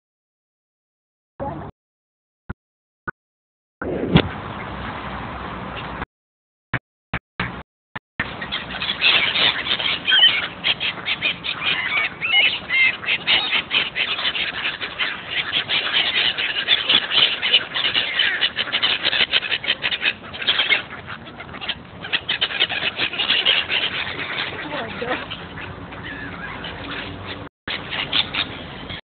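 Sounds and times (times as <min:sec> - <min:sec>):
ducks quacking: 0:08.2 - 0:29.0
gulls calling: 0:08.2 - 0:29.0.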